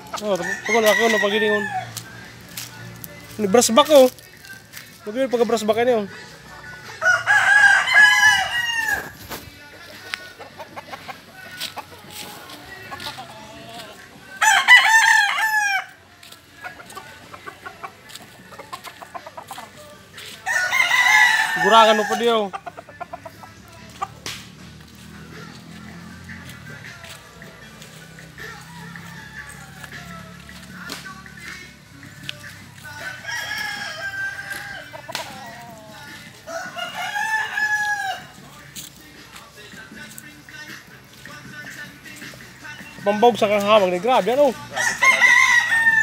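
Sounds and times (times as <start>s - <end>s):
rooster crowing: 0.3s - 2.0s, 7.0s - 9.2s, 14.4s - 16.0s, 20.4s - 22.5s, 28.4s - 30.6s, 32.9s - 38.4s, 44.7s - 46.0s
chicken clucking: 4.9s - 15.3s, 16.2s - 31.6s, 32.2s - 39.5s.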